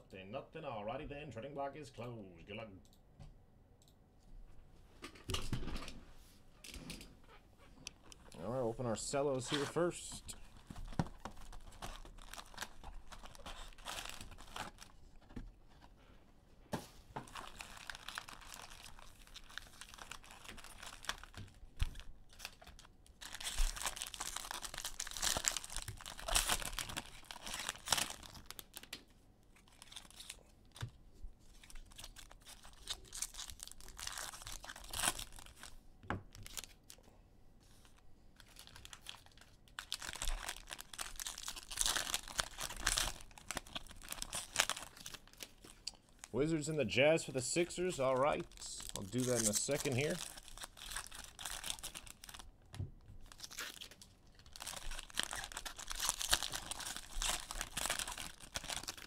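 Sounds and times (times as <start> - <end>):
cellophane tearing and crinkling: 9.2 - 15.9, 17.3 - 37.0, 37.8 - 46.3, 47.6 - 52.6, 53.2 - 59.0.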